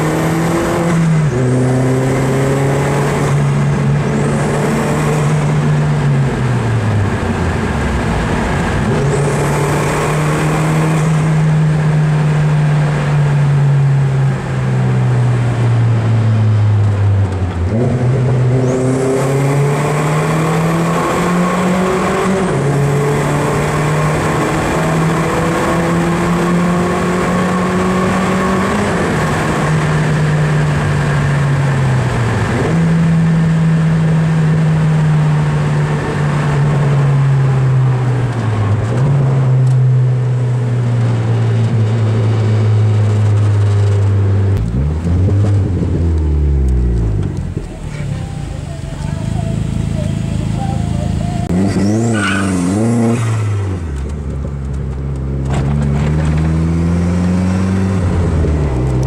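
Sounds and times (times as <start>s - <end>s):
car engine revving: 0.0s - 59.0s
high turbo whistle: 47.8s - 53.5s.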